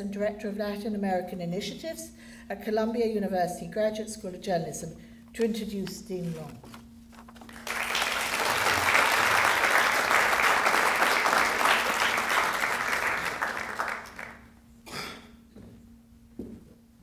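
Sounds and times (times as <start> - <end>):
audience applauding: 7.5 - 14.5.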